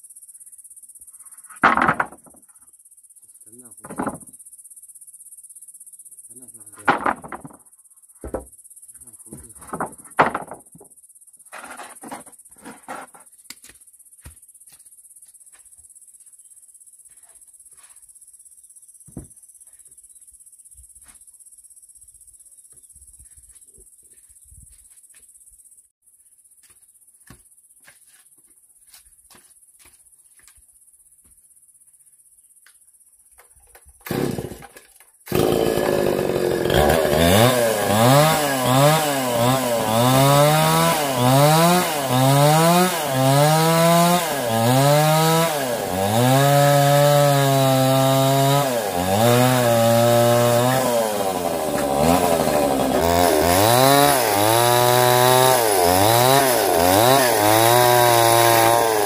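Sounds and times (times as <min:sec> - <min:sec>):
insects chirring: 0:00.0 - 0:45.2.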